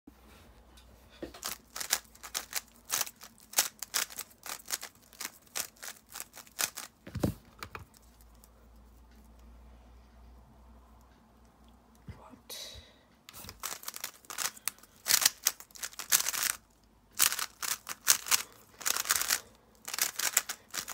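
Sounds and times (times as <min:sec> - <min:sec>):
puzzle cube plastic clicks: 0:01.4 - 0:08.3, 0:13.3 - 0:20.9.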